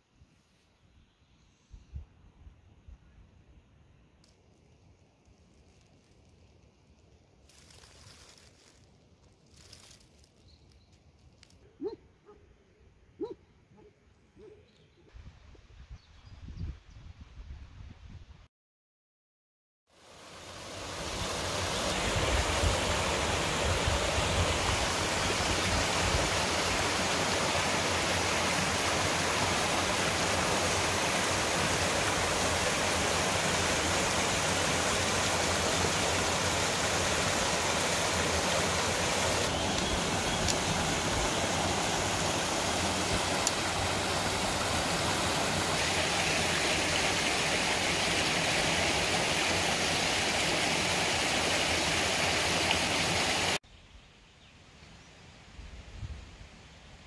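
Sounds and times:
stream cascading over rocks: 20.0 - 53.6.

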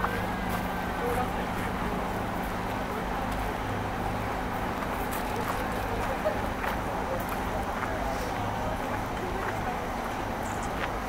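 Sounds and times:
city traffic hum: 0.0 - 11.0
faint voices: 0.0 - 11.0.

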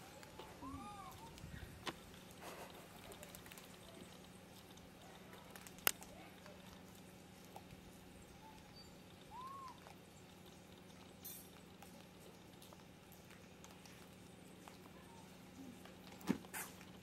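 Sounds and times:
macaque squeak: 8.4 - 9.8.

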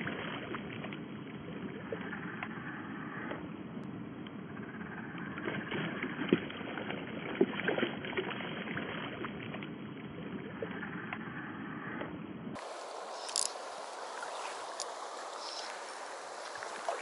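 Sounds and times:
fish splashing at surface: 12.6 - 17.0
river water flowing: 12.6 - 17.0.

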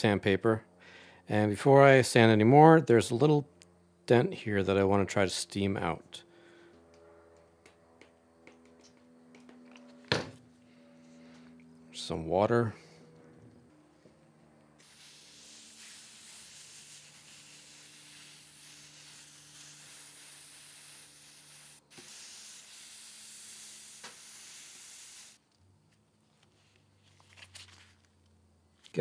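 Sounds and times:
steam hissing: 14.8 - 25.4.

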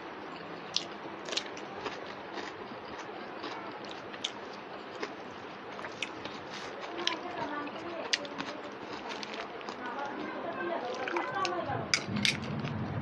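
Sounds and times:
man chewing cucumber: 0.1 - 7.3.

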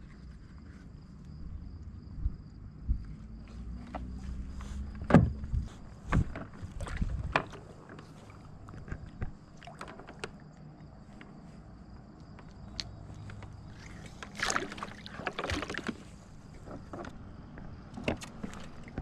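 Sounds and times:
knocks and clicks handling fish: 4.8 - 11.4, 12.2 - 19.0.

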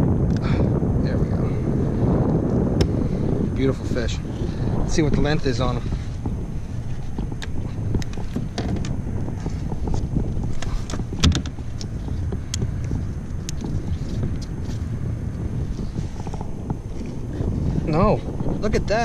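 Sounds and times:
wind on microphone: 0.0 - 19.0
fish handling clicks and knocks: 10.5 - 12.7.

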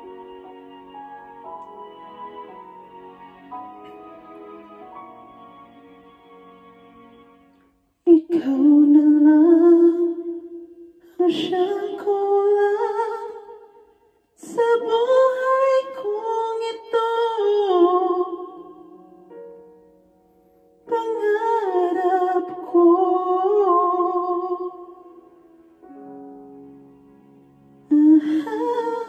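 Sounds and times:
woman singing into a microphone: 8.1 - 13.7, 14.4 - 18.9, 20.8 - 25.2, 27.9 - 29.0.

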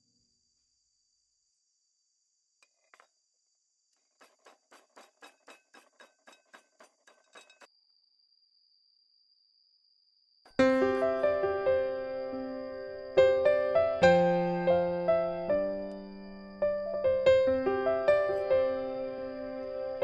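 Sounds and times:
stone pestle pounding in mortar: 4.2 - 7.7.

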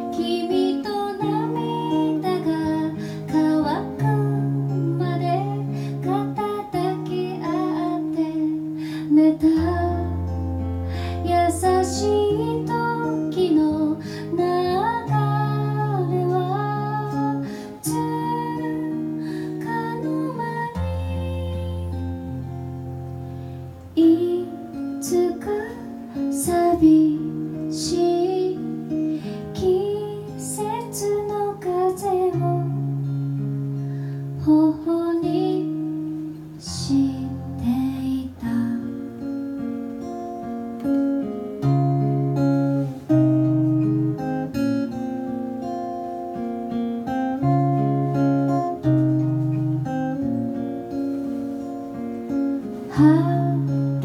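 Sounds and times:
woman singing: 0.0 - 22.6, 23.9 - 33.4, 34.3 - 39.6, 52.6 - 54.0
acoustic guitar: 0.0 - 54.0.

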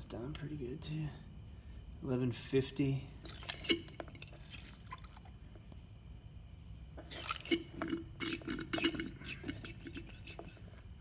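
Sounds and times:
liquid gurgles and bulb clicks: 3.2 - 5.4, 7.0 - 10.6.

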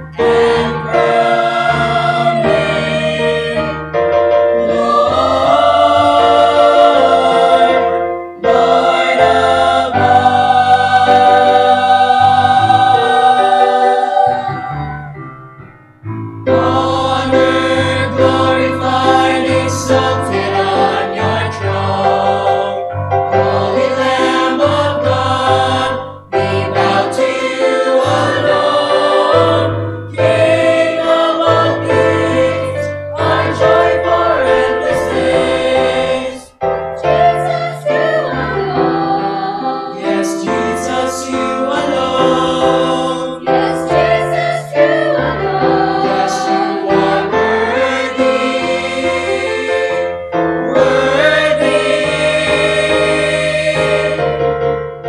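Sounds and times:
mixed choir singing gospel: 0.0 - 15.2, 16.5 - 54.8.

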